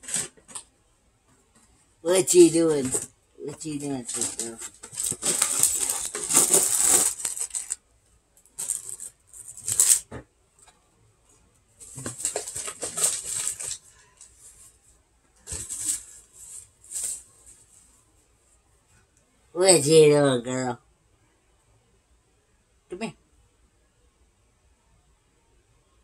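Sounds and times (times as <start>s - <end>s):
plastic bag crinkling: 3.8s - 7.8s, 8.5s - 10.1s, 11.8s - 14.3s
cardboard box shaken: 4.0s - 7.8s, 11.8s - 13.8s, 15.5s - 16.2s.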